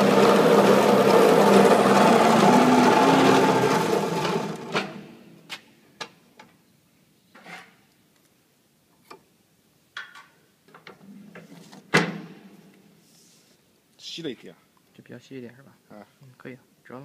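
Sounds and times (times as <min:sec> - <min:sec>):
winding machine running down: 0:00.0 - 0:05.1.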